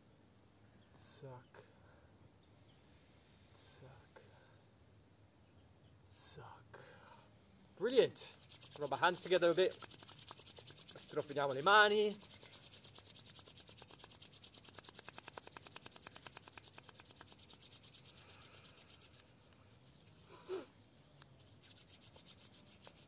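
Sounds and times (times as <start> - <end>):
palms rubbing together: 7.8 - 23.0.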